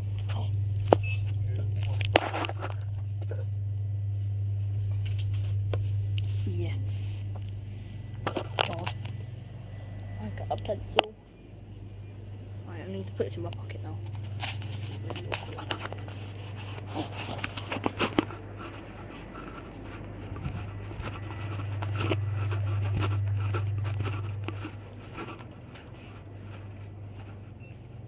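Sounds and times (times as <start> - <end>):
steady low hum: 0.0 - 28.0
fabric rubbing on microphone: 14.2 - 27.6.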